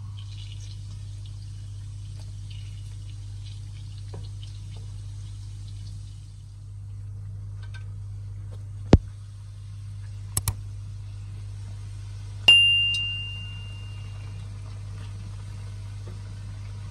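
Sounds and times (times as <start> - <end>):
oil sizzling and popping: 0.0 - 6.4, 14.3 - 16.9
steady low hum: 0.0 - 16.9.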